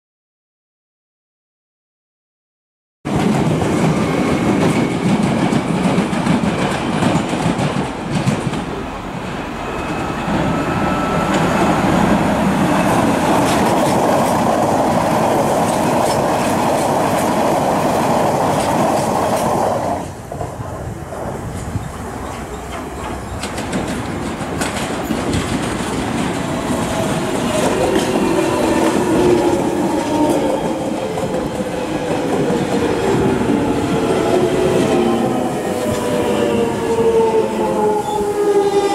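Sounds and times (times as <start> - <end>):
train wheels clicking over rail joints: 3.1 - 8.8, 11.3 - 20.6, 21.2 - 35.0
train running drone: 3.1 - 38.9.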